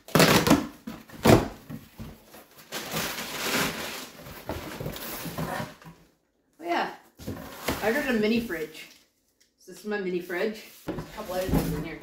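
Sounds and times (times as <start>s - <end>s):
packing tape ripping: 0.1s - 0.7s.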